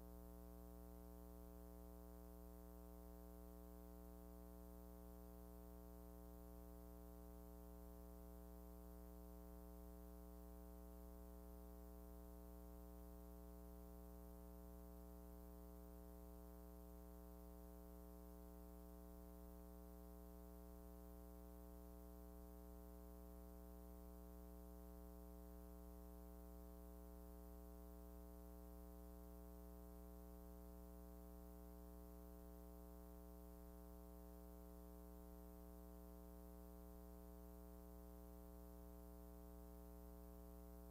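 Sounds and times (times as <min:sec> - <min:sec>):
faint steady hum: 0:00.0 - 0:40.9.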